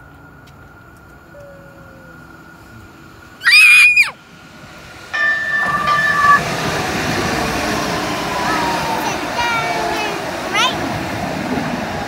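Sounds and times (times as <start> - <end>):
train cars rumbling past: 4.3 - 12.0
high-pitched shriek: 5.2 - 9.0
two steady tones: 5.2 - 9.0.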